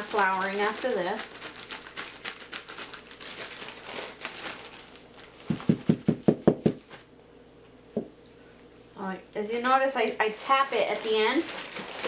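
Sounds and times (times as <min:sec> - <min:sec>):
plastic bag crinkling: 0:00.0 - 0:05.9, 0:09.6 - 0:12.0
dull thumps of bag tapping: 0:05.4 - 0:06.8.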